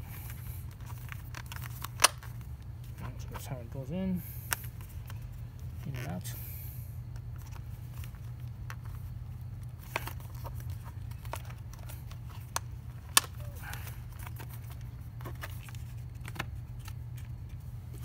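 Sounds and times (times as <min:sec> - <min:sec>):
low background hum: 0:00.0 - 0:18.0
sharp plastic snap: 0:01.8 - 0:02.3.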